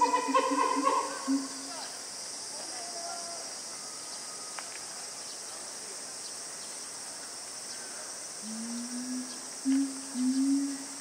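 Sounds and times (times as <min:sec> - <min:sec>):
insect chorus buzzing: 0:00.0 - 0:11.0
faint click: 0:04.5 - 0:04.9
person humming: 0:08.4 - 0:11.0.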